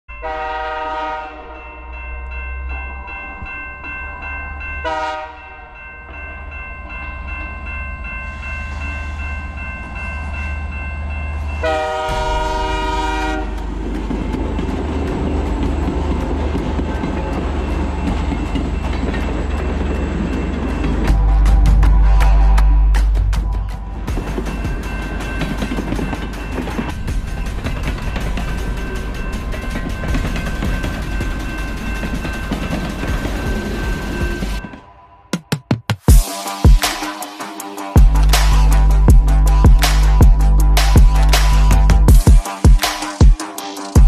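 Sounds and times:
crossing bell ringing: 0:00.1 - 0:35.3, 0:36.1 - 0:44.0
train horn blasts: 0:00.2 - 0:01.8, 0:04.8 - 0:05.8, 0:11.6 - 0:13.8
locomotive rumble: 0:05.6 - 0:35.0
train wheels clattering on rails: 0:11.4 - 0:44.0.

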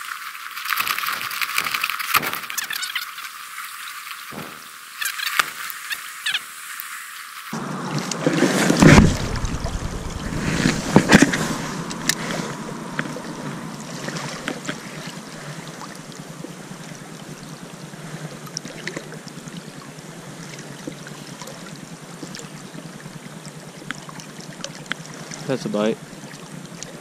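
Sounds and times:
creek water flowing: 0:00.0 - 0:27.0
rustles and knocks: 0:00.7 - 0:03.0, 0:04.3 - 0:05.8, 0:08.0 - 0:15.0.

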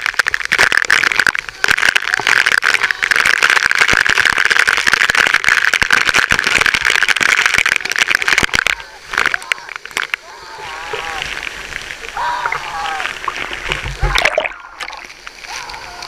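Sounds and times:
falling water rushing hiss: 0:00.0 - 0:16.0
water drops pattering on camera: 0:00.0 - 0:16.0.

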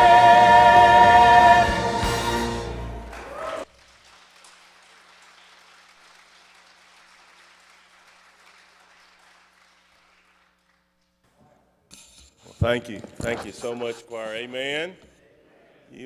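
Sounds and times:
choir singing: 0:00.0 - 0:03.6
faint applause: 0:02.9 - 0:10.8.

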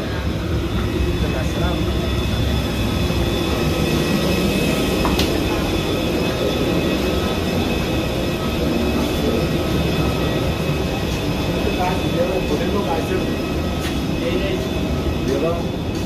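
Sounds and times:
faint high whine: 0:00.0 - 0:16.0
parked airliner rumble: 0:00.0 - 0:16.0.

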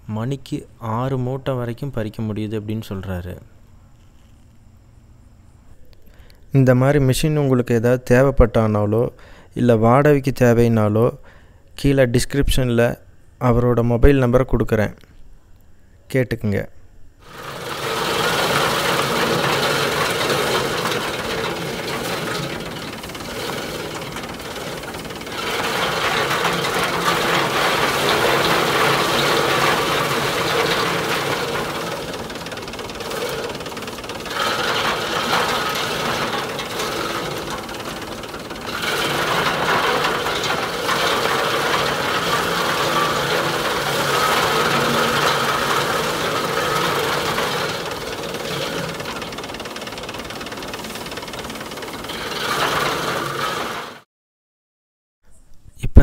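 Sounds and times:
separator machine running: 0:17.2 - 0:54.0
tractor engine at low speed: 0:17.3 - 0:54.0.

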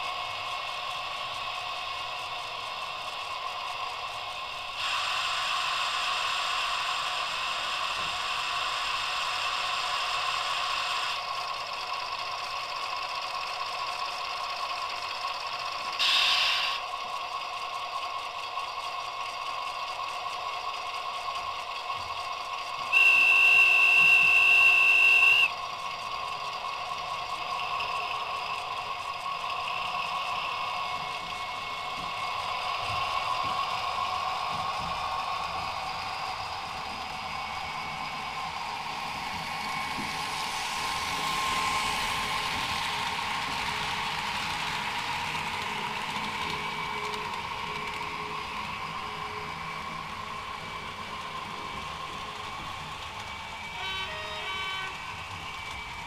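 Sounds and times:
diesel idling from small speaker: 0:00.0 - 0:43.7
loud hiss: 0:04.2 - 0:11.2, 0:16.0 - 0:16.9
locomotive horn blast: 0:22.9 - 0:25.5, 0:53.7 - 0:55.2.

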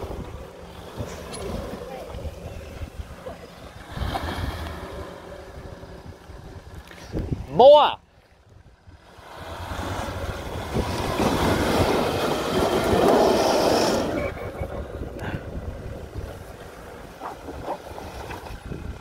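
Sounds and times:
wind noise on microphone: 0:00.0 - 0:03.2, 0:03.8 - 0:07.6, 0:08.5 - 0:16.6, 0:17.2 - 0:19.0
car engine revving hard: 0:09.1 - 0:14.4.

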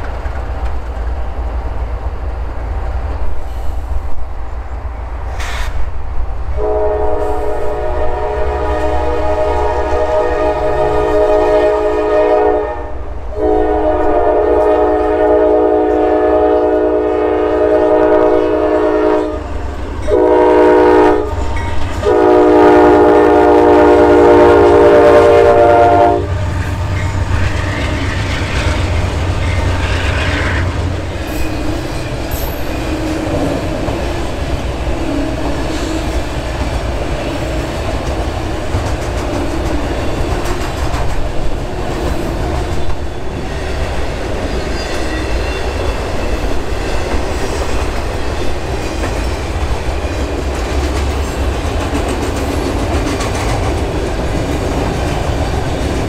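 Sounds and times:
train wheels clattering on rails: 0:00.0 - 0:04.2, 0:21.2 - 0:22.2, 0:26.3 - 0:56.0
locomotive air horn blasts: 0:06.6 - 0:19.4, 0:20.1 - 0:26.4.

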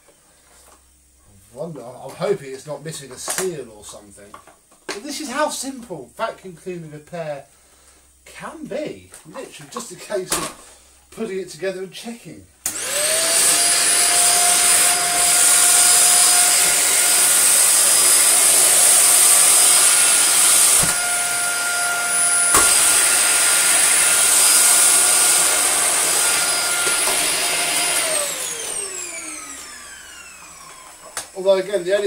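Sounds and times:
vacuum cleaner whining: 0:12.6 - 0:32.0.

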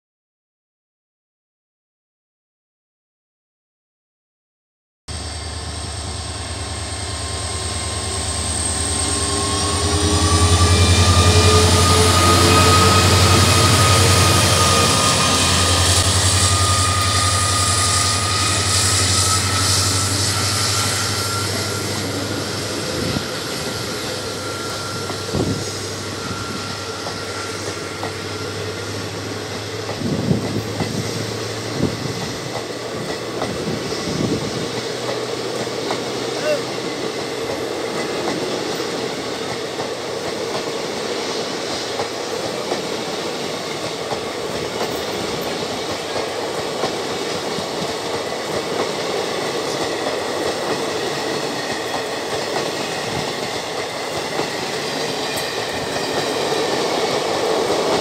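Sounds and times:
diesel locomotive engine droning: 0:05.1 - 0:58.0
train coaches rumbling: 0:05.1 - 0:58.0
thin high tone: 0:05.2 - 0:29.8.

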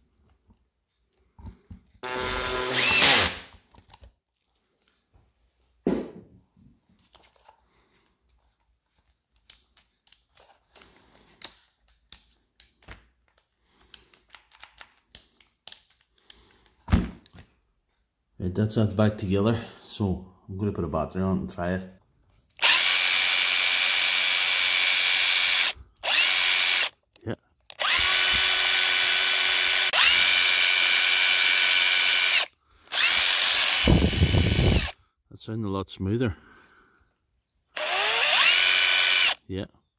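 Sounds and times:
cordless impact driver whining: 0:02.0 - 0:03.5, 0:22.6 - 0:27.0, 0:27.7 - 0:35.0, 0:37.8 - 0:39.4
tool thump on rubber mat: 0:05.8 - 0:06.4.

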